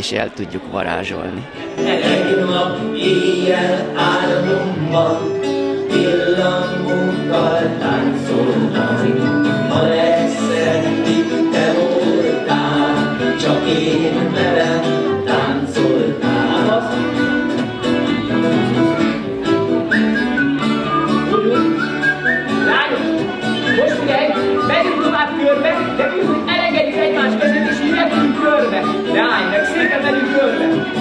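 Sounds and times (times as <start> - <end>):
person singing: 1.0 - 18.4, 20.5 - 31.0
strummed acoustic guitar: 1.4 - 31.0
folk band playing dance tune: 9.0 - 31.0.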